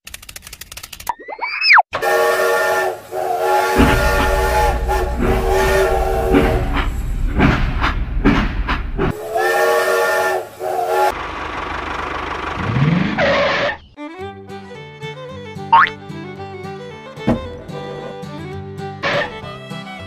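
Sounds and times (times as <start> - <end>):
toy steam whistle: 2.0 - 6.9, 9.1 - 11.2
steam hissing: 2.0 - 11.1
low rumble: 3.8 - 9.1.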